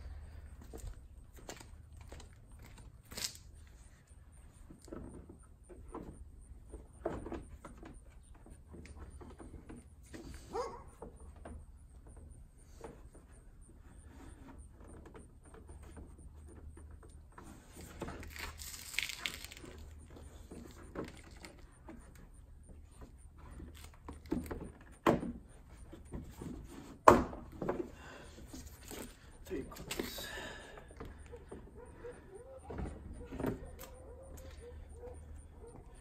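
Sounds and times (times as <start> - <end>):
scraping rustle: 12.6 - 24.8.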